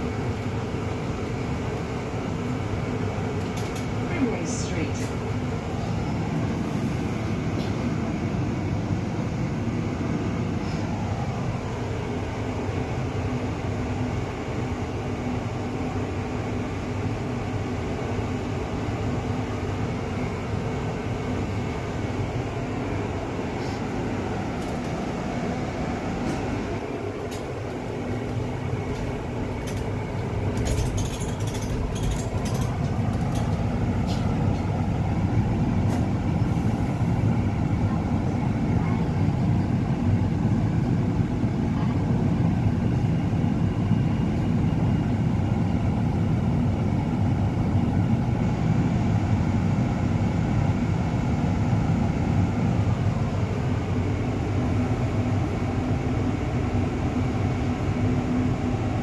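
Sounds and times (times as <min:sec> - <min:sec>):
bus engine hum and whine: 0:00.0 - 0:59.0
light rattles: 0:28.3 - 0:34.3.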